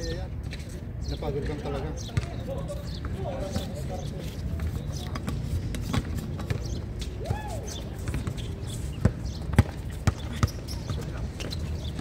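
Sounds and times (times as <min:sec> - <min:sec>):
steady background noise: 0:00.0 - 0:12.0
basketball bouncing on court: 0:02.1 - 0:02.4, 0:09.0 - 0:12.0.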